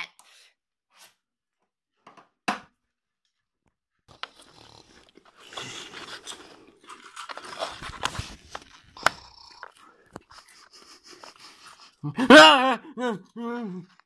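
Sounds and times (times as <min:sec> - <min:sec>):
plastic toys handled on wooden floor: 0:04.1 - 0:10.4.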